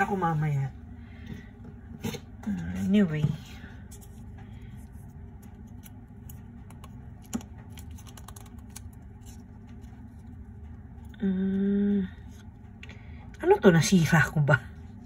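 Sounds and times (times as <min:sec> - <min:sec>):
steady low hum: 0:00.0 - 0:15.0
person humming: 0:11.1 - 0:12.2.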